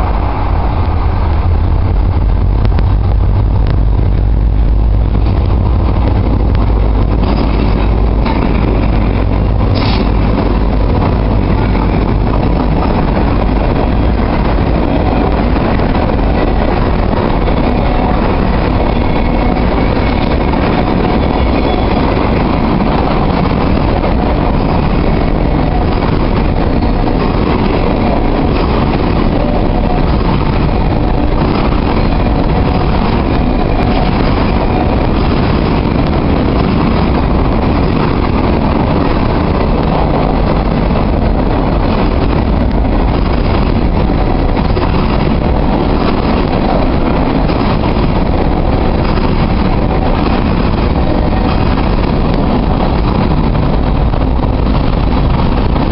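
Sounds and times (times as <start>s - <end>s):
train wheels rumbling on rails: 0.0s - 55.9s.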